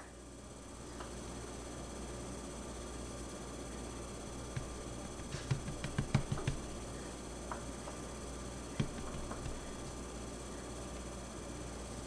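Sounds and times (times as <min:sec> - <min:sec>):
hand patting dough: 0:04.5 - 0:06.9, 0:08.8 - 0:10.0.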